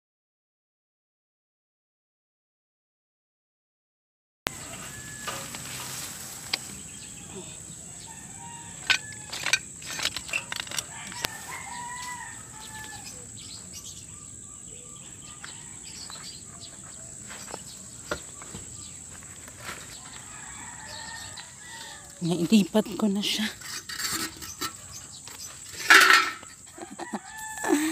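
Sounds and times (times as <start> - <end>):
rooster crowing: 4.5 - 13.5, 15.0 - 16.1, 19.9 - 22.3, 25.9 - 27.9
rustling of leaves and twigs: 4.5 - 13.9, 15.4 - 27.9.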